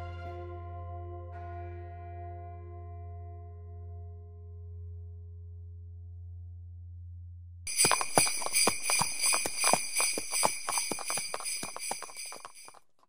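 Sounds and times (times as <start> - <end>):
jingle bells shaking: 7.7 - 12.8.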